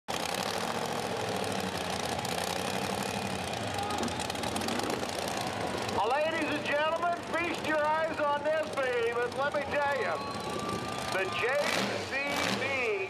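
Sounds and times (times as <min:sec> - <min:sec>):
engine running at high revs: 0:00.1 - 0:13.0.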